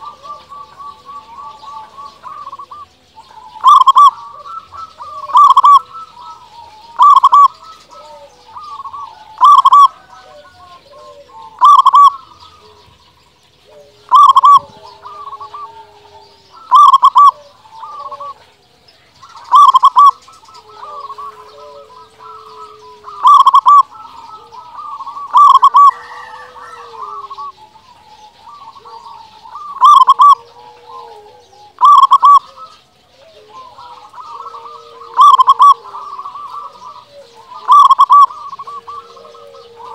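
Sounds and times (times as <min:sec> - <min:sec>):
dove cooing: 0:00.0 - 0:39.9
dove singing: 0:00.0 - 0:39.9.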